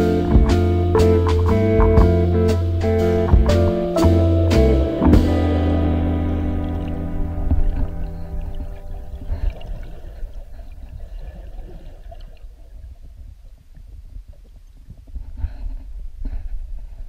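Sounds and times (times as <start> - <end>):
muffled underwater rumble: 0.0 - 17.0.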